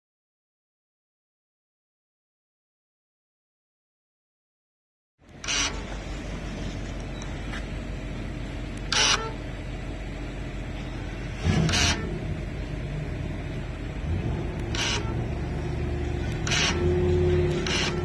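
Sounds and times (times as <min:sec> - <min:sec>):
engine running with low hum: 0:05.2 - 0:18.0.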